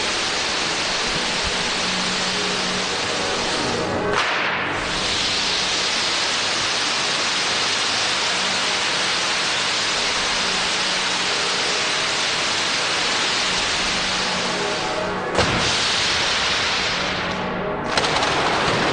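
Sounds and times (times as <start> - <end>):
firework fountains hissing: 0.0 - 3.8, 4.7 - 17.4.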